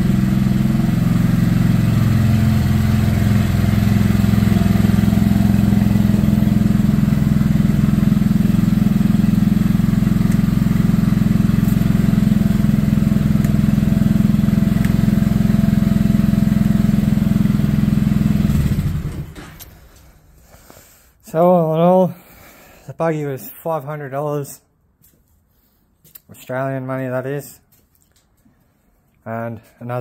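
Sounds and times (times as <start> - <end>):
small petrol engine idling: 0.0 - 19.8.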